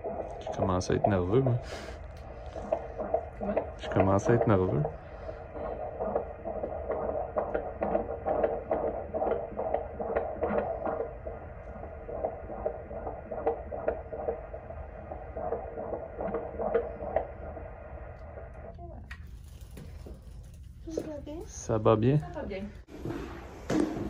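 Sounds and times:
fetal heartbeat whooshing pulse: 0.0s - 18.8s.

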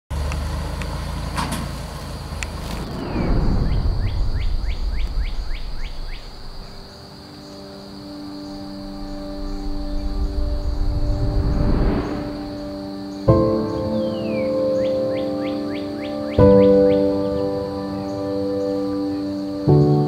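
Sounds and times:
falling sweep: 2.6s - 7.1s, 8.5s - 13.7s
steady high whine: 2.7s - 13.9s.

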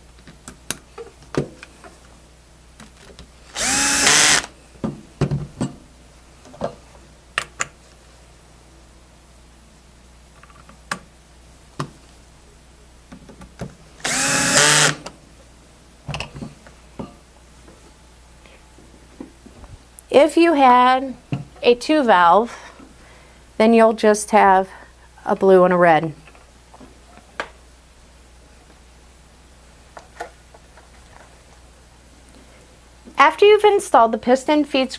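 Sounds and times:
cordless screw gun whirring: 3.5s - 4.5s, 14.0s - 15.1s.

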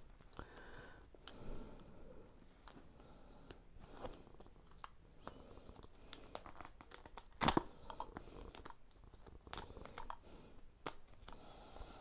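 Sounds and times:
wallpaper crinkling and rustling: 3.8s - 11.4s.

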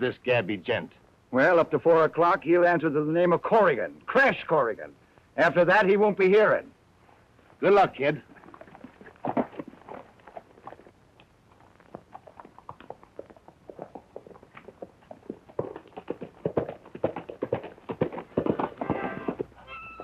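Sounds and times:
horse hoofbeats: 8.2s - 11.0s, 11.6s - 20.0s.

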